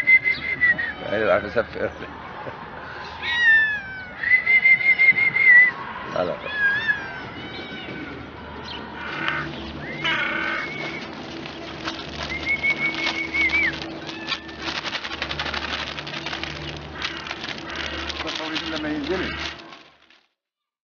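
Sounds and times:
birds calling: 0:05.8 - 0:20.2
high gliding bird call: 0:09.0 - 0:15.5
held wavering bird call: 0:09.0 - 0:19.6
scattered clicks: 0:10.8 - 0:20.3.

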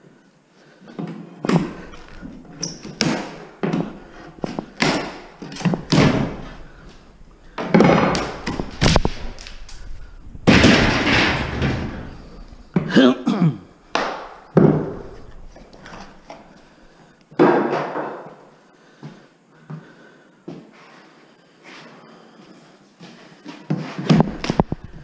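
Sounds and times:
wood scraping apart: 0:01.5 - 0:12.7.

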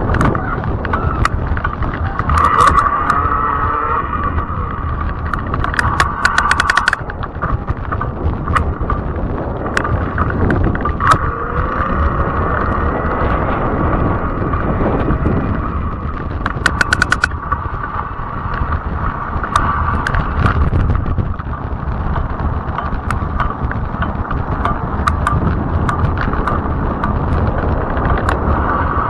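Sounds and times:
sharp clicks: 0:00.0 - 0:13.4, 0:16.0 - 0:28.7
e-bike ride noise: 0:00.0 - 0:29.0
high motor whine: 0:00.0 - 0:29.0.

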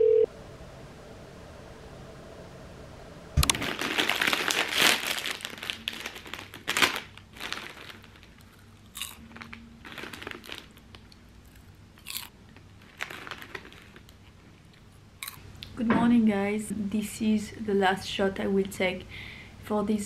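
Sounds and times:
popcorn bag crinkling: 0:03.4 - 0:15.4.

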